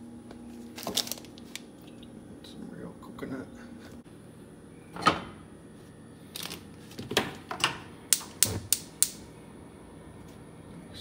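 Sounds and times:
gas igniter clicking: 8.1 - 9.2.

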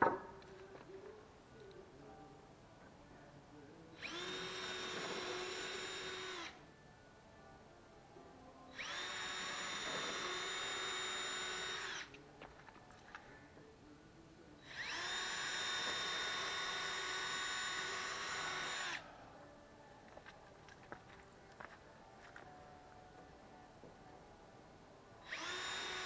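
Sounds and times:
cordless drill whining: 4.0 - 6.6, 8.8 - 12.1, 14.6 - 19.0, 25.3 - 26.0.

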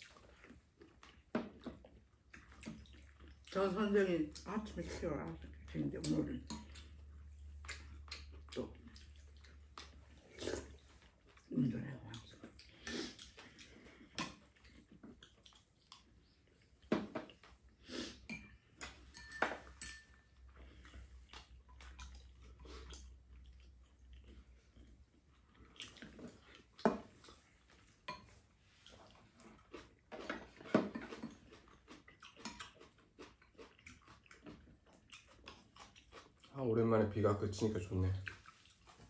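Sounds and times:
utensils clinking on ceramic bowls: 18.3 - 20.4.

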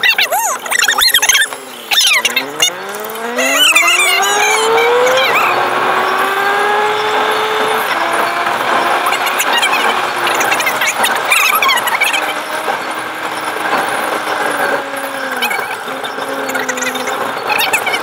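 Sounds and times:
high animal calls: 0.0 - 5.7, 9.0 - 12.4, 15.0 - 18.0
car engine accelerating: 0.0 - 18.0.

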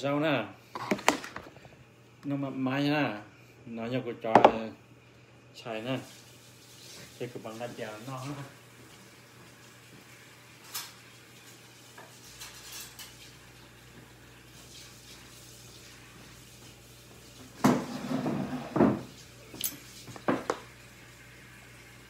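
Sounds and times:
dishes and utensils clattering: 12.1 - 13.3, 17.6 - 20.6.

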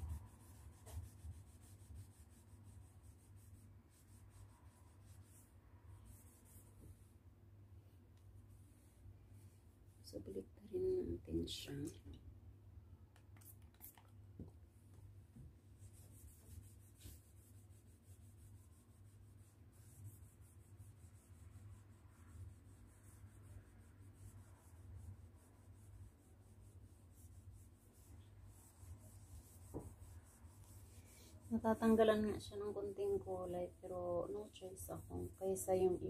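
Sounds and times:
cloth rubbing on wall: 0.0 - 7.1, 15.6 - 21.5, 22.2 - 36.0.

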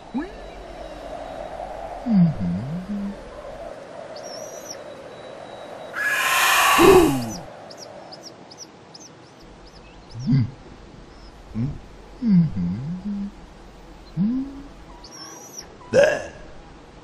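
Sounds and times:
high bird-like chirps: 4.2 - 9.1
rushing burst with falling cry: 6.0 - 7.5.

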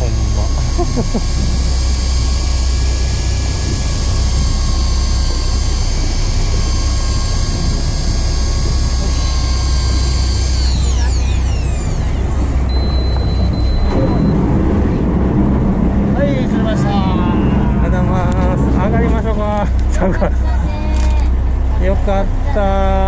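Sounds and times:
electric fishing reel motor whine: 0.0 - 14.4
low rumble: 0.0 - 23.0.

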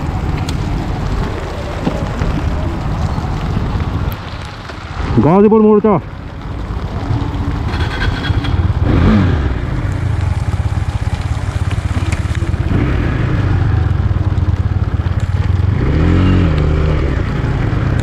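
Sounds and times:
motorcycle engine running: 6.2 - 18.0.

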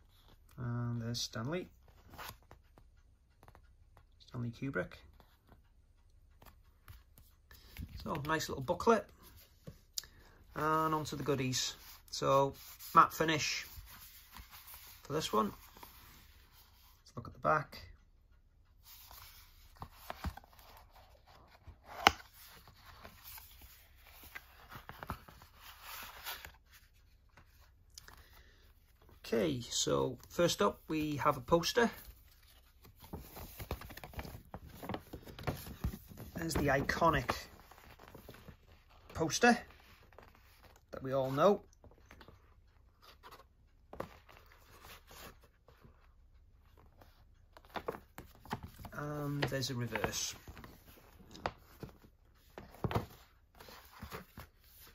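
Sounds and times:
paper and card rustling: 5.0 - 17.0, 18.7 - 54.9.

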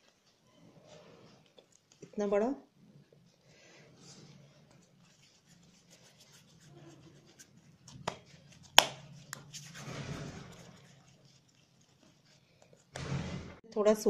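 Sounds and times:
hands rolling dough: 3.8 - 13.0.

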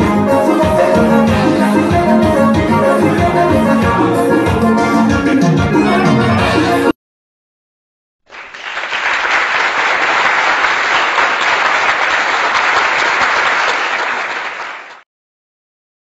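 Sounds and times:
crowd applause: 8.3 - 15.0.

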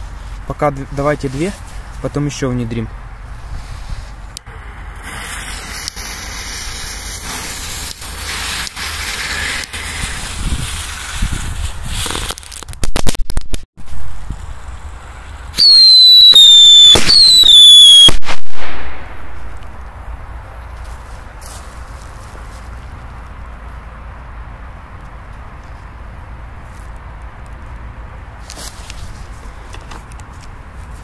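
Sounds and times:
fizzing hiss of fuses and sparks: 3.6 - 12.4
firework bangs: 5.0 - 13.2, 15.5 - 19.6
shrill firework whistling: 15.5 - 19.4.

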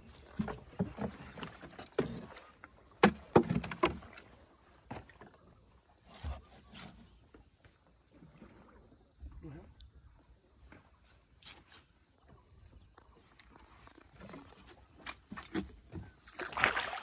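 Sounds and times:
knocks on small wooden boat: 3.0 - 4.0.

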